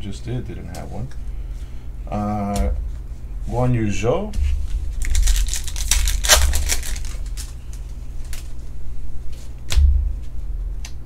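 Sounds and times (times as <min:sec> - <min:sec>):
card flicks: 0:05.0 - 0:08.5
cards clicking and scraping: 0:05.0 - 0:08.5
sharp snap with low knock: 0:09.7 - 0:11.0.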